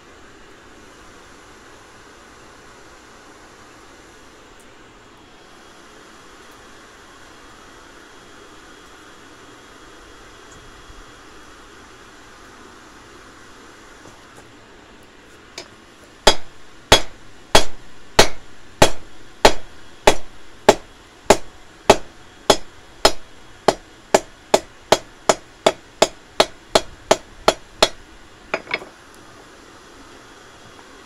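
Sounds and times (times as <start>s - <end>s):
hammer striking steel on anvil: 15.6s - 28.9s.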